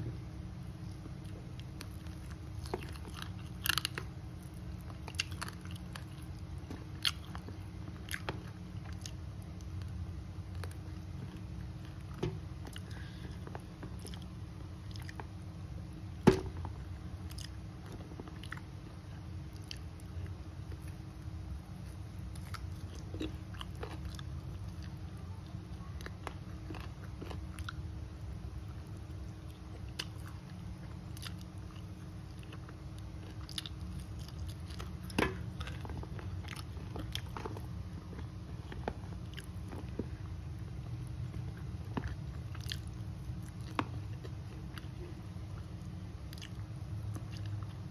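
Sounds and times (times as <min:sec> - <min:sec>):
steady low hum: 0:00.0 - 0:47.9
close-up chewing: 0:00.6 - 0:15.6, 0:16.2 - 0:47.9
small crunches and clicks of bones: 0:00.8 - 0:15.4, 0:29.4 - 0:47.9.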